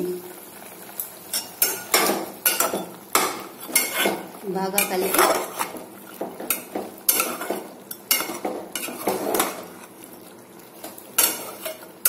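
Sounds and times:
spoon scraping metal pot: 0:03.6 - 0:04.2, 0:04.8 - 0:05.8, 0:06.5 - 0:09.9.

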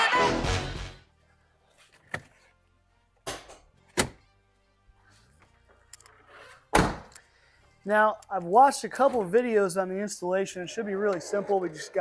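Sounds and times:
sharp thunks: 0:06.7 - 0:07.1.

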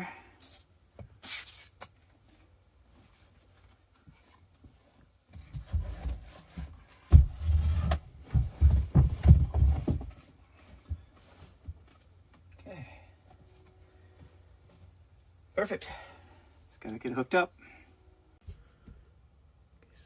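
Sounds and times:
low thumps and rubbing: 0:05.4 - 0:11.8.

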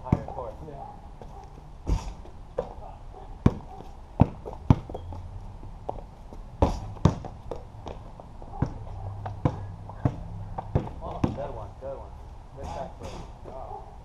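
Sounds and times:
basketball bouncing on concrete: 0:00.0 - 0:00.4, 0:03.4 - 0:11.6.

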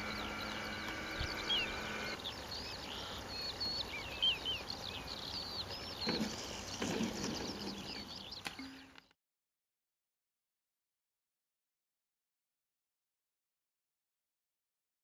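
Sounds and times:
model plane engine drone: 0:00.0 - 0:02.5
birds chirping: 0:00.0 - 0:09.2.

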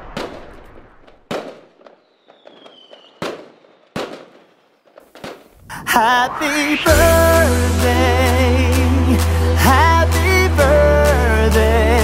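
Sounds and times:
falling firework whistle: 0:00.0 - 0:07.6
firework bangs: 0:00.0 - 0:07.6
firework crackling: 0:00.0 - 0:10.2.

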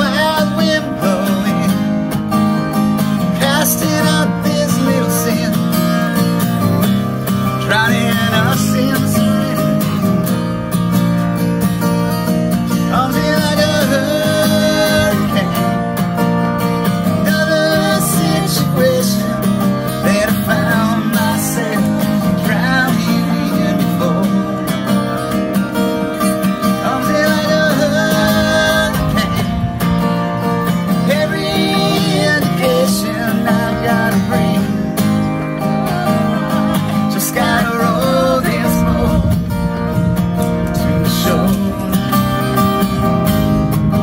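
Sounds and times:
acoustic guitar strumming: 0:00.0 - 0:44.0
man and woman singing: 0:12.9 - 0:15.6, 0:17.2 - 0:24.9, 0:26.7 - 0:29.4, 0:31.0 - 0:35.0, 0:35.6 - 0:39.4.

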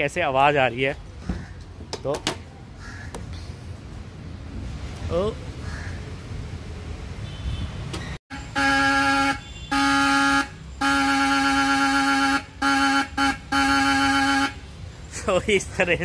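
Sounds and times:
buzzy car horn honking: 0:07.2 - 0:14.8.

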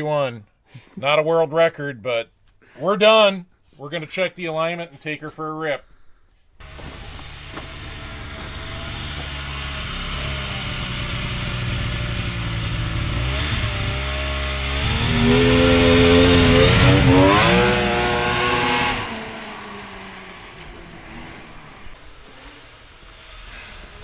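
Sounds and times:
snowmobile engine passing: 0:06.6 - 0:24.0.

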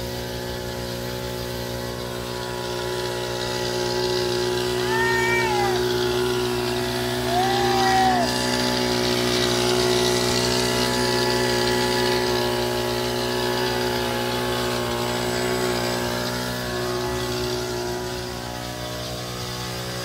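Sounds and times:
sprayer pump humming: 0:00.0 - 0:20.0
goat bleating: 0:04.8 - 0:05.8.

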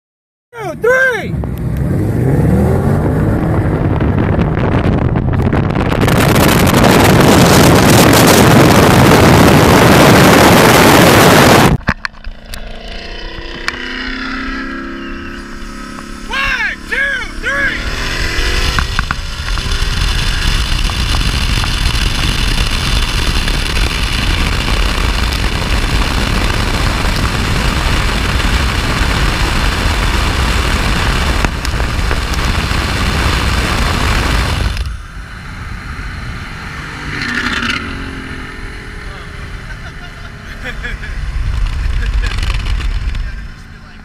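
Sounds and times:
wind and road noise: 0:00.6 - 0:44.0
car engine at full throttle: 0:01.1 - 0:44.0.

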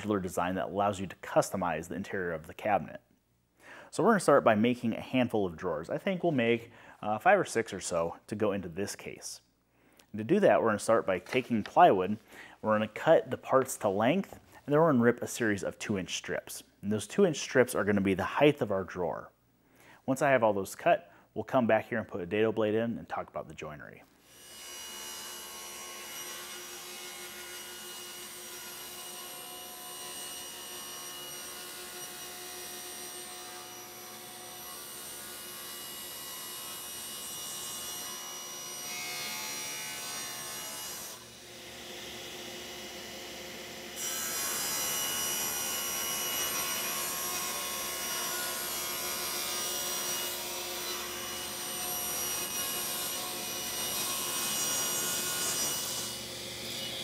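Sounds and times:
table saw cutting plywood: 0:24.3 - 0:57.0.

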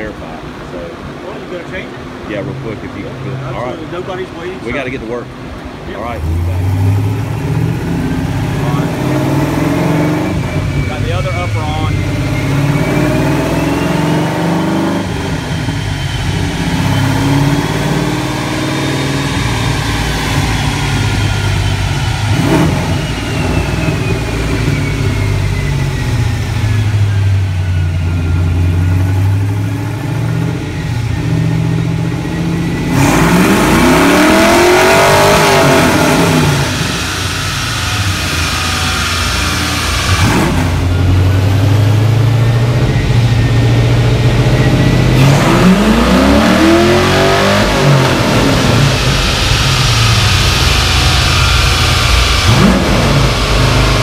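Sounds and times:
car engine idling and revving: 0:00.0 - 0:54.0.

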